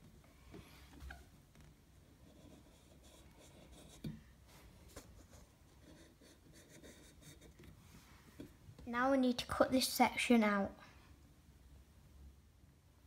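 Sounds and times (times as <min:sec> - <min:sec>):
marker pen scratching on pipe: 0:02.2 - 0:04.2, 0:04.9 - 0:07.8.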